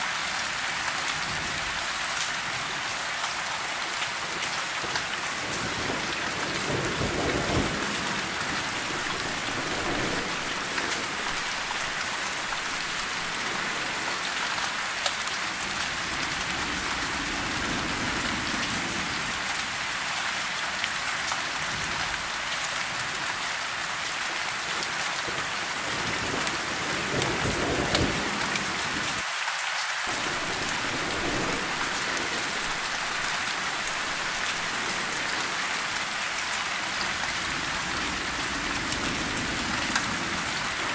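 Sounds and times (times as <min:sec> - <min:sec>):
rain falling on leaves: 0:00.0 - 0:40.9
distant thunder rumbling: 0:05.4 - 0:14.4, 0:30.1 - 0:35.6.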